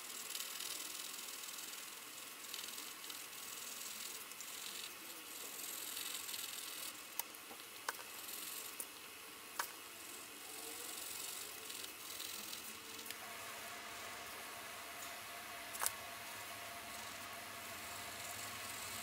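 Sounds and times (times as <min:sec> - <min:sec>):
pencil scratching on paper: 0:00.0 - 0:07.0, 0:08.1 - 0:08.8.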